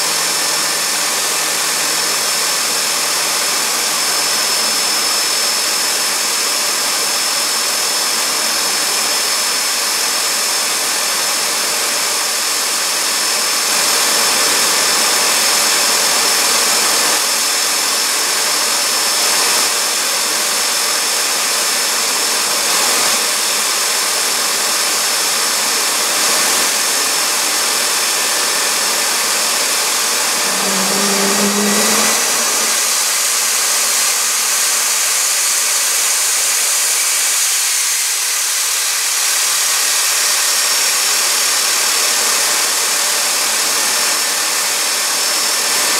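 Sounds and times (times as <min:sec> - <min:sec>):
turbojet engine roaring: 0:25.0 - 0:35.0.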